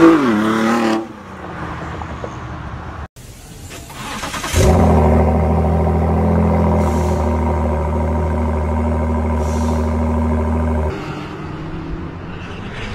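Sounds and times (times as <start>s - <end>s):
car engine starting and idling: 3.3s - 10.9s
car driving off: 3.8s - 12.9s.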